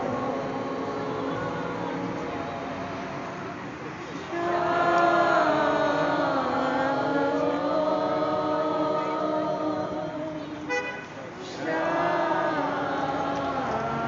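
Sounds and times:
crowd singing long notes: 0.0 - 14.0
horn toot: 10.7 - 11.1.

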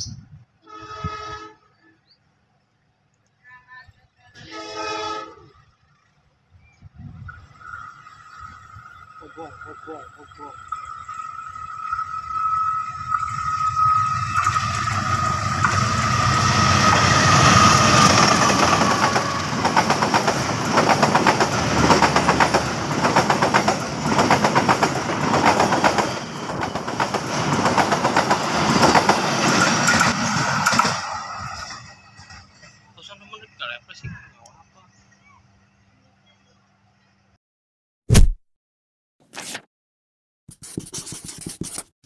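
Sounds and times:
locomotive high whine: 4.4 - 24.2
train wheels clattering over rail joints: 15.4 - 31.0.

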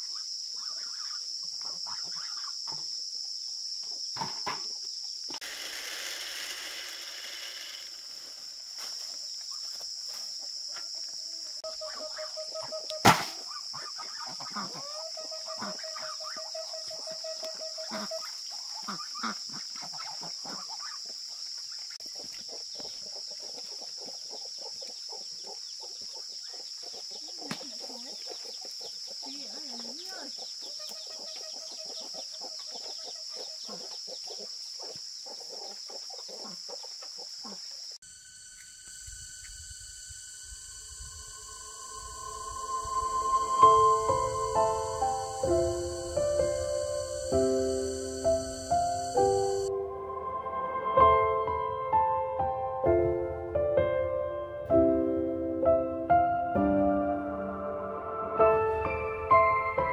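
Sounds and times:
high insect drone: 0.0 - 52.9
poultry clucking: 22.0 - 37.6.

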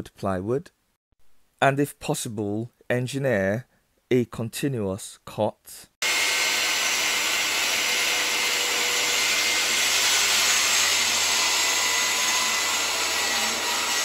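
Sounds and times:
circular saw whirring: 6.0 - 14.0.

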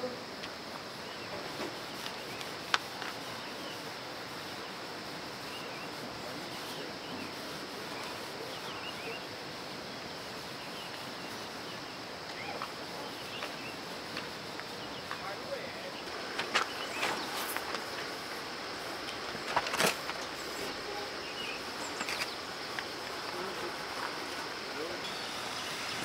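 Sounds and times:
background hiss: 0.0 - 26.0
faint bird chirps: 5.4 - 9.3, 10.3 - 13.8.

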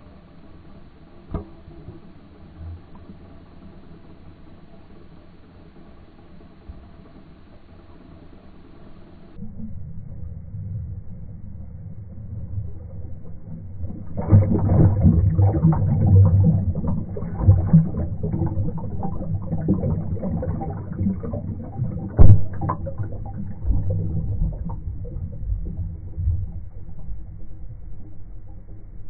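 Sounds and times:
underwater rushing bubbles: 9.4 - 29.0
underwater crackling: 12.2 - 29.0
low thumps: 12.8 - 27.8.

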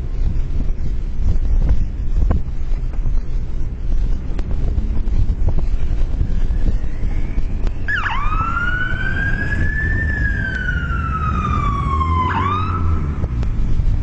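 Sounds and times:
wind rumble on microphone: 0.0 - 14.0
siren wailing: 5.9 - 13.4.

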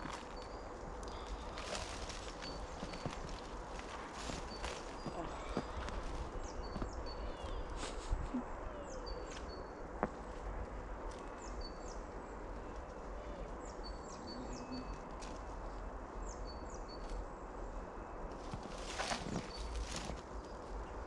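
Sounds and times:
low background rumble: 0.0 - 21.0
songbird chirping phrase: 0.2 - 7.8, 8.4 - 9.9, 11.2 - 15.1.

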